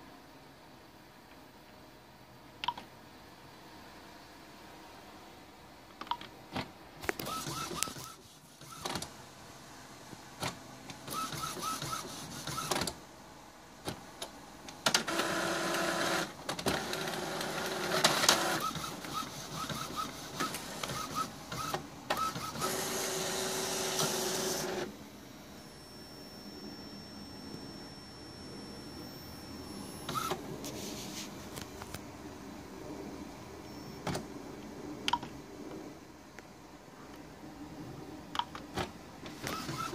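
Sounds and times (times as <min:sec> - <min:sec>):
inkjet printer printing: 0:06.6 - 0:09.1, 0:10.4 - 0:13.0, 0:13.9 - 0:25.0, 0:29.1 - 0:31.2, 0:38.7 - 0:39.9.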